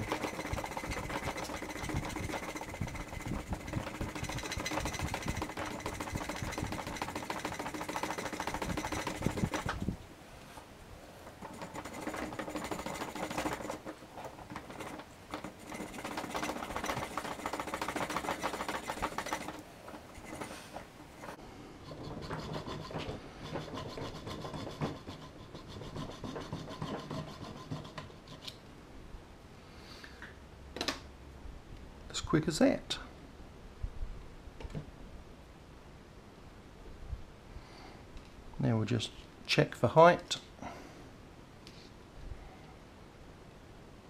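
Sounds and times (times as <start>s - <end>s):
razor saw cutting: 0.0s - 9.9s, 11.3s - 28.5s.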